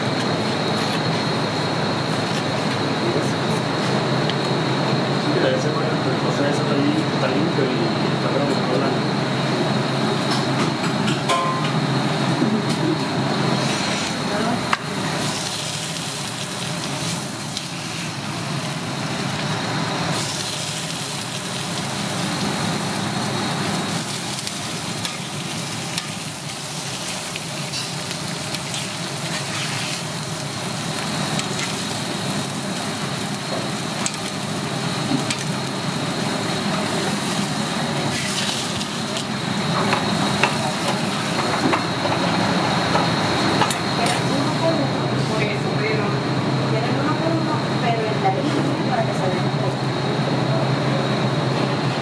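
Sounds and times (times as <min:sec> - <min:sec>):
meat sizzling on a griddle: 0:00.1 - 0:03.1, 0:12.1 - 0:45.6.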